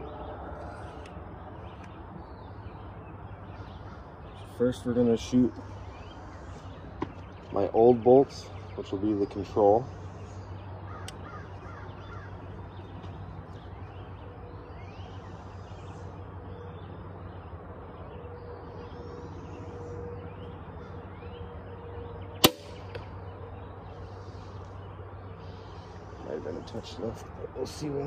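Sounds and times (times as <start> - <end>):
birds chirping: 0.0 - 28.0
steady low hum: 0.0 - 28.0
crossbow firing crack: 22.4 - 23.1.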